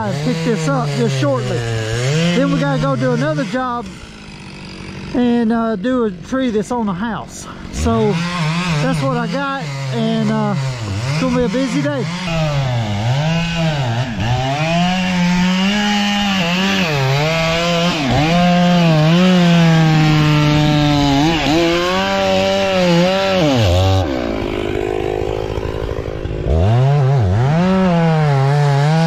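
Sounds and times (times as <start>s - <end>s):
chainsaw cutting wood: 0.0s - 29.0s.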